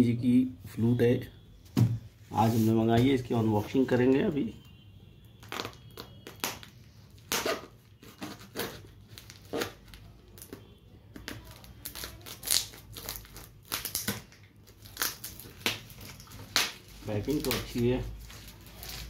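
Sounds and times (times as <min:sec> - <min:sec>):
knife scraping packing tape: 0:07.3 - 0:09.8.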